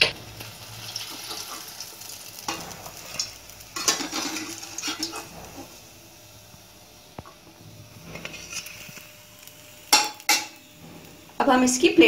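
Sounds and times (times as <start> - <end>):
hot oil sizzling in a pan: 0.0 - 12.0
metal spoon scraping a pan: 2.5 - 5.8, 8.0 - 9.0.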